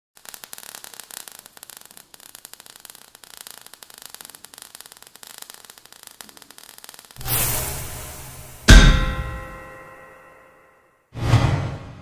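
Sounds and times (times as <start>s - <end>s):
crackling sparks hiss: 0.2s - 9.7s.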